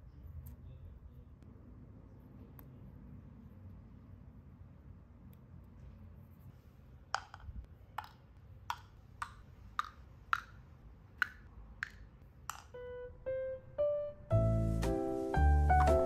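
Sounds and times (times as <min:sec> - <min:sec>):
treats clicking into cups: 0:07.2 - 0:12.8
soft musical notes: 0:12.7 - 0:16.0.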